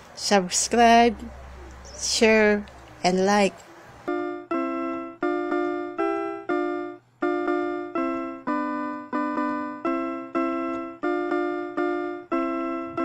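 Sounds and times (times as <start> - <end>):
simple single-note melody: 4.1 - 13.0.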